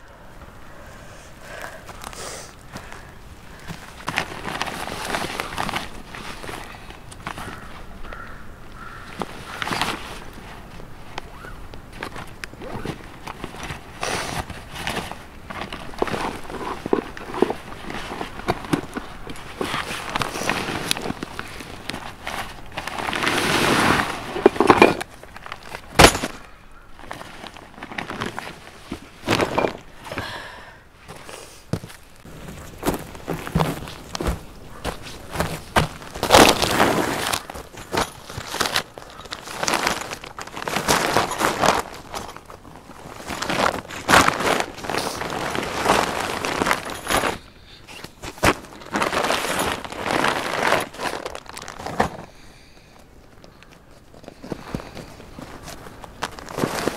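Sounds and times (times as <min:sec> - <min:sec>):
backpack fabric rustling: 0:08.8 - 0:26.4, 0:27.0 - 0:30.0, 0:31.1 - 0:52.2.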